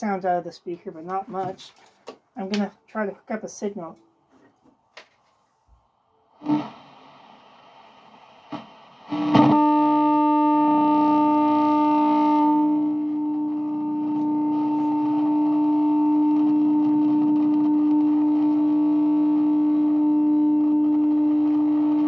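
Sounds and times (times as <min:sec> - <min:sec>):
buzzy test tone from loudspeaker: 0:06.3 - 0:22.0.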